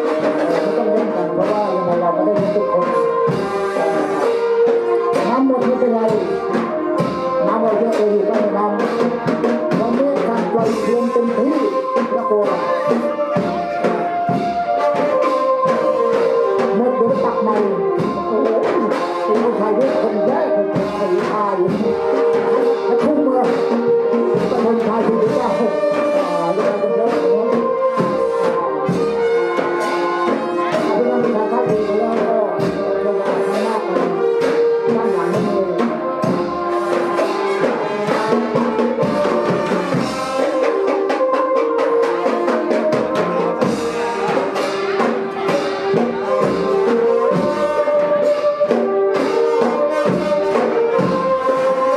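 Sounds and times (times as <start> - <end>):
brass horns playing melody: 0.0 - 51.9
busy drum beat: 0.0 - 51.9.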